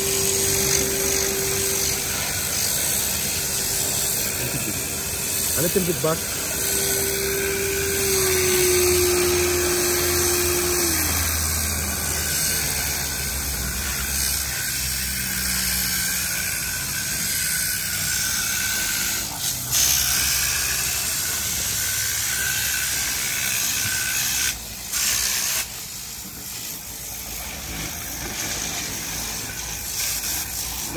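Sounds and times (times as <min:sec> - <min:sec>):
vacuum motor whining: 0:00.0 - 0:13.9.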